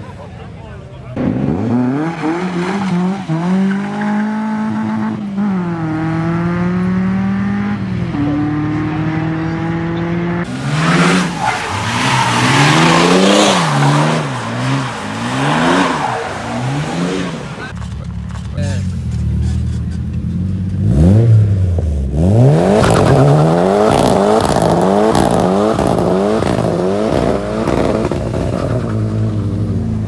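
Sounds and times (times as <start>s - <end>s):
car engine revving: 1.2s - 30.0s
tyres spinning on wet road: 10.6s - 17.8s.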